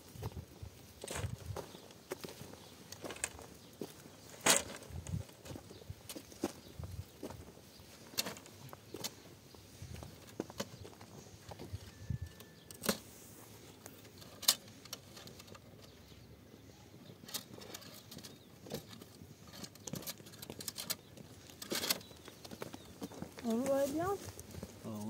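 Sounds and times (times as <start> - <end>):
plastic hose clicks and rustles: 17.2 - 22.6.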